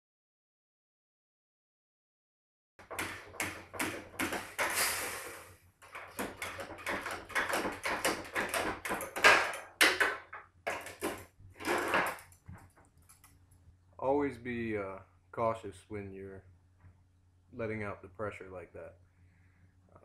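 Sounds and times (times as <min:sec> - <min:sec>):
hiss of escaping refrigerant: 0:04.6 - 0:05.6.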